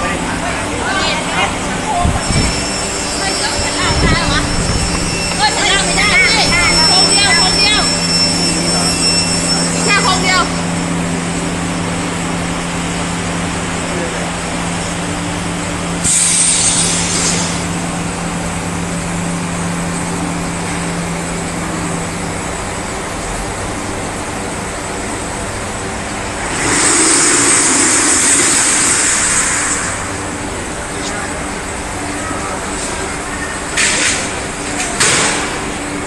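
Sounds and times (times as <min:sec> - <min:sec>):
machinery humming: 0:00.0 - 0:36.0
compressed air hissing: 0:16.0 - 0:17.7.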